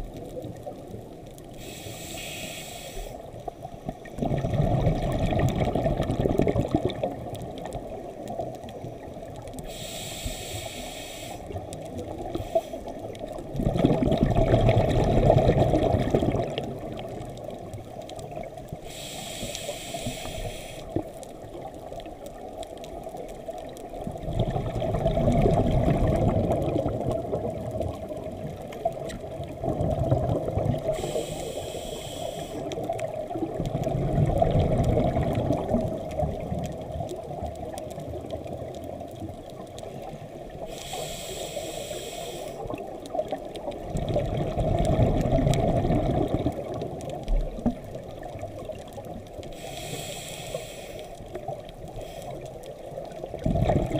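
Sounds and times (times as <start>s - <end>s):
exhaled air bubbling: 0.0s - 53.9s
regulator inhalation hiss: 1.6s - 3.4s, 9.6s - 11.6s, 12.2s - 13.0s, 18.8s - 21.0s, 30.9s - 32.9s, 40.6s - 42.8s, 49.5s - 52.6s.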